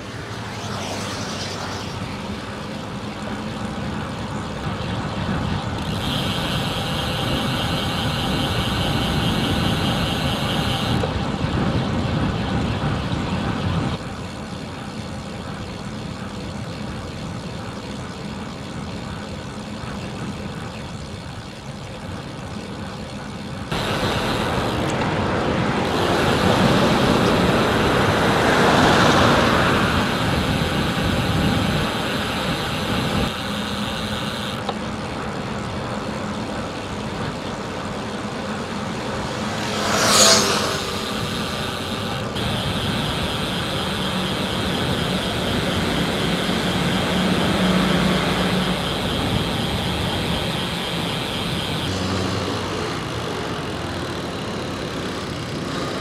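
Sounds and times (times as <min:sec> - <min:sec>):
traffic rushing past: 0:00.0 - 0:14.0, 0:23.7 - 0:34.7, 0:37.5 - 0:56.0.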